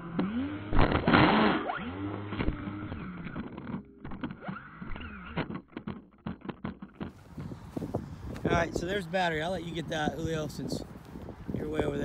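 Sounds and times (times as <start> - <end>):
drone motors whining: 0.0 - 5.8
clicks and rustles in grass: 10.5 - 12.0.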